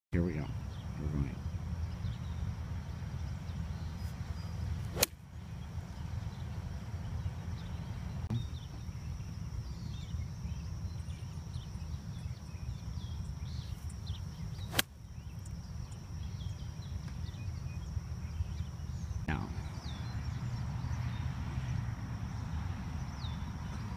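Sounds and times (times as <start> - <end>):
golf club striking ball: 5.0 - 5.2, 14.6 - 14.9.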